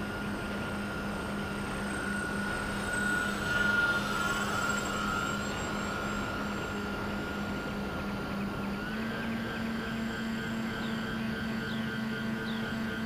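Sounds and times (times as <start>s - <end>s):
model plane motors whining: 0.0s - 13.0s.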